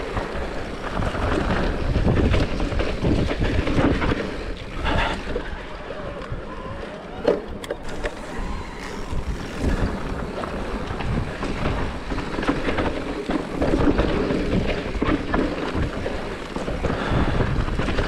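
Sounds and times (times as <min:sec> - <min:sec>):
bike rattling and knocking: 0:00.0 - 0:05.5, 0:07.2 - 0:18.0
wind buffeting microphone: 0:00.0 - 0:18.0
tyres rolling over dirt: 0:06.9 - 0:18.0.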